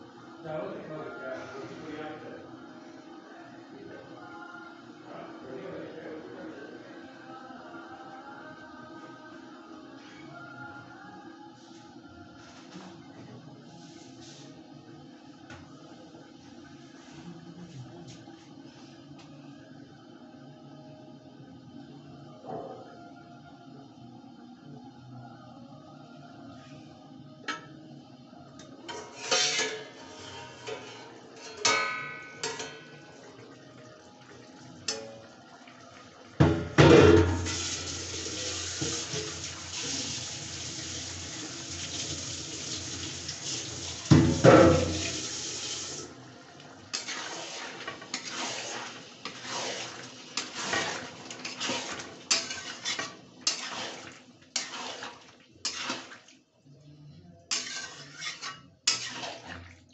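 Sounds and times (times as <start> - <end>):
metal spoon scraping a pan: 28.8 - 32.9, 46.9 - 56.3, 57.5 - 59.7
curry sizzling in a pan: 37.2 - 56.4, 57.5 - 59.7.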